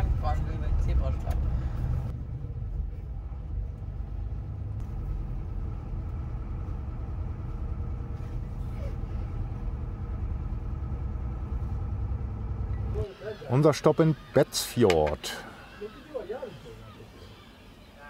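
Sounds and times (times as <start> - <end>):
truck diesel engine rumble: 0.0 - 13.1.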